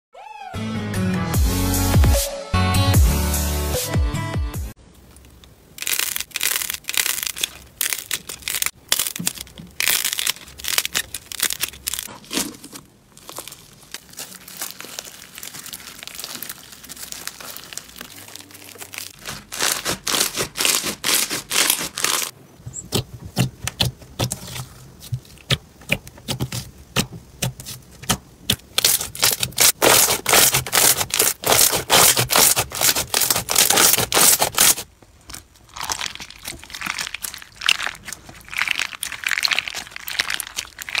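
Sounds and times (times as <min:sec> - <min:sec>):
slime crackling and popping: 0:05.2 - 0:22.3, 0:25.4 - 0:41.0.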